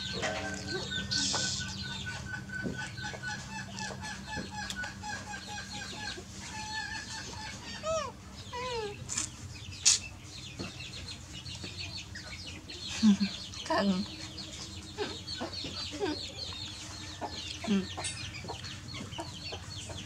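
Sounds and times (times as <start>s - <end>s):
falling squeaky calls: 0.0s - 10.0s
chickens clucking: 0.0s - 20.0s.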